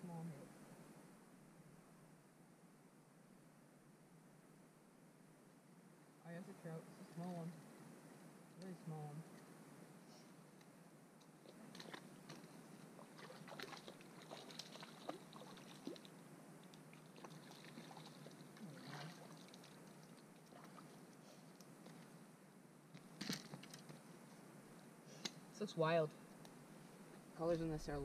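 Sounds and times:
small clicks and rustles: 10.5 - 12.6, 13.5 - 22.1, 22.9 - 25.4
faint water splashing: 11.3 - 22.0.

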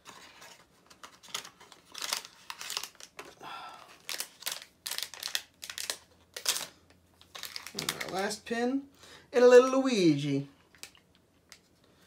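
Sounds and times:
packaging crinkling and tearing: 0.0 - 8.5, 10.6 - 11.7.

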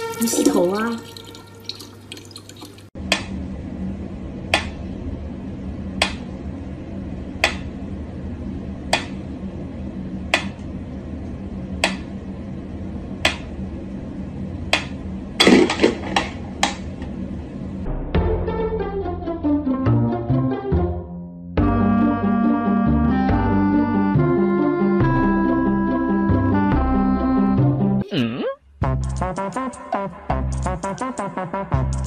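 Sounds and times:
tap water running: 0.0 - 3.0
low steady hum: 0.0 - 18.0.

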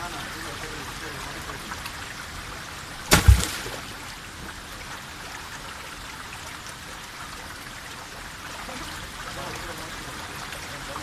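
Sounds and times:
rocky stream running: 0.0 - 11.0
stone hitting water splash: 3.0 - 3.9.

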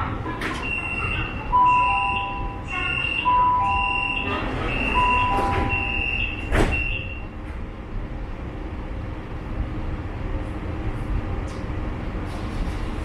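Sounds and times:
metro car rumble: 0.0 - 13.0
door-closing warning beeps: 0.4 - 7.4
sliding doors shutting thump: 6.4 - 6.9.

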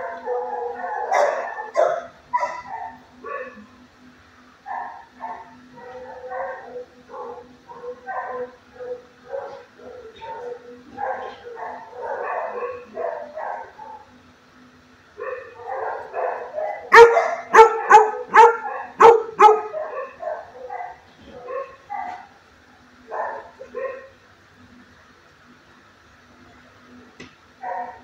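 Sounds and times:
dog barking sharply: 16.2 - 20.4.

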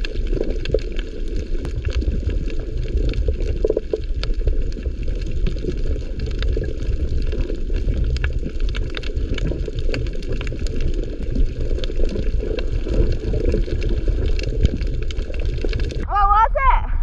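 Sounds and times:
sharp underwater clicks: 0.0 - 16.0
underwater rumble of water: 0.0 - 16.1.

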